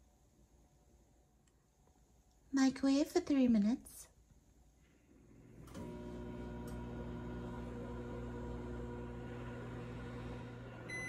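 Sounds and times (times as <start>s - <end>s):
microwave oven humming: 5.2s - 11.0s.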